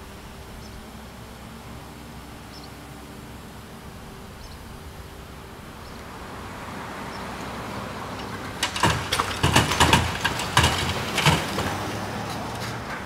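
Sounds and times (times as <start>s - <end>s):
street traffic passing: 0.0s - 13.0s
loud clattering knocks and thumps: 8.2s - 13.0s.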